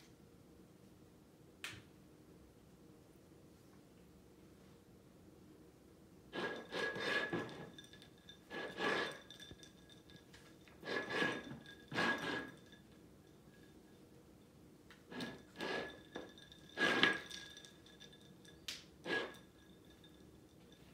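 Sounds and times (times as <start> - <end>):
ceramic bowl ringing: 15.1 - 20.9.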